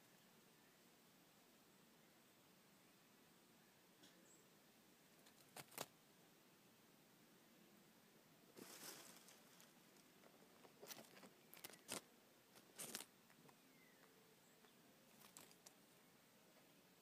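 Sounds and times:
dry sticks rustling and crackling: 5.2s - 5.9s, 8.6s - 13.6s, 14.6s - 15.8s.

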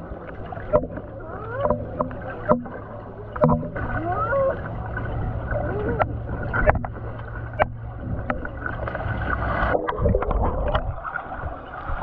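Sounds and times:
air bubbles streaming: 0.0s - 12.0s
muffled underwater hum: 0.0s - 12.0s.

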